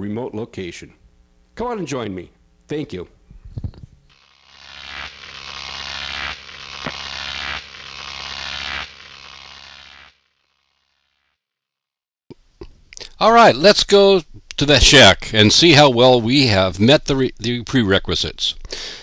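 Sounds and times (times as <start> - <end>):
buzzing rattling mechanical noise: 3.2 - 11.2.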